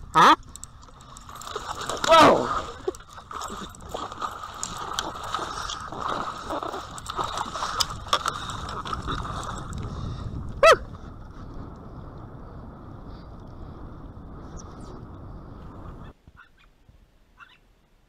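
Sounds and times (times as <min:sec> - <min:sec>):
gear clicks and rattles: 0:00.0 - 0:10.6
water splashing fish thrashing: 0:00.4 - 0:10.1.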